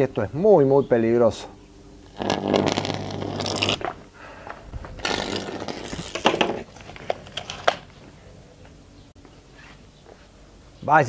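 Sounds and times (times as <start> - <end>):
low hum: 1.6 - 9.1
electric arc buzzing crackle: 2.0 - 8.0.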